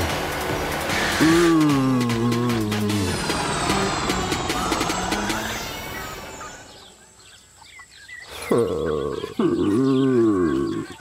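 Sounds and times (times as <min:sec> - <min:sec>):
birds chirping: 0:00.0 - 0:11.0
cartoon soundtrack: 0:00.9 - 0:07.0
cartoon character moaning: 0:01.2 - 0:03.3, 0:08.5 - 0:10.9.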